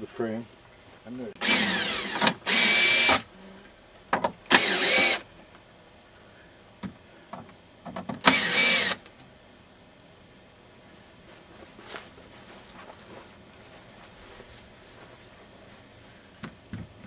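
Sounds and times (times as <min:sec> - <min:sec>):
cordless screw gun whirring: 0:01.4 - 0:03.3, 0:04.5 - 0:05.2, 0:08.2 - 0:09.1.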